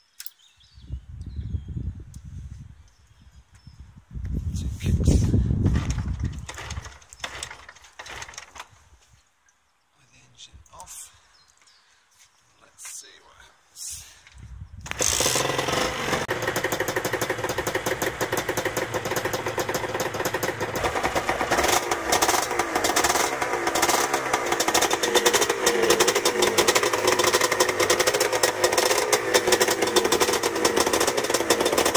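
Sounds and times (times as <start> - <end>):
two-stroke motorcycle engine running: 5.8 - 8.4, 14.9 - 31.9.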